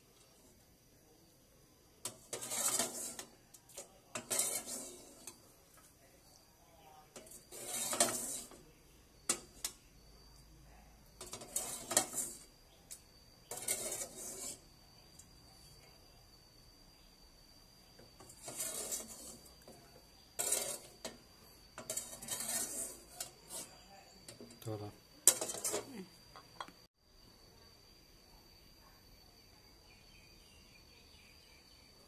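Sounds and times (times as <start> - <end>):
metal ladle scraping cooking pot: 2.0 - 5.9, 7.1 - 9.8, 11.2 - 14.8, 18.0 - 24.5, 25.2 - 26.0.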